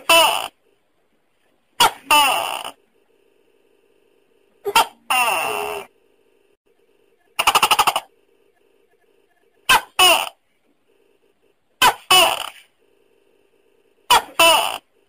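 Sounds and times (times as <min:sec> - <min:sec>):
gecko calling: 0:07.4 - 0:08.1.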